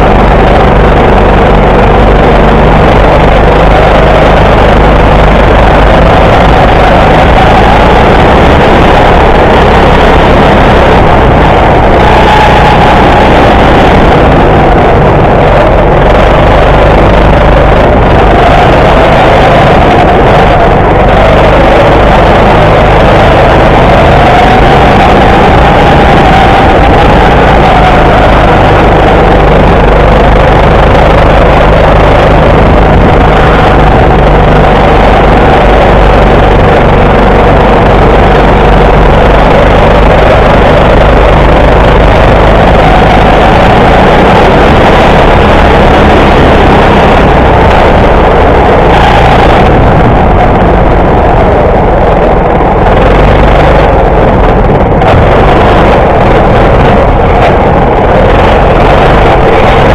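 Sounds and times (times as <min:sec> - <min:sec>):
go-kart engine running: 0:00.0 - 0:59.9.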